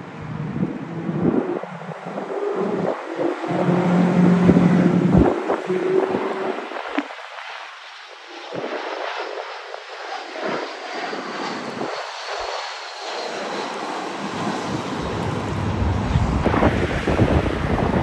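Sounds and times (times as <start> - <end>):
faint high engine whine: 0.0 - 7.2, 11.1 - 18.0
jet engines rushing: 0.0 - 18.0
low jet rumble: 0.0 - 18.0.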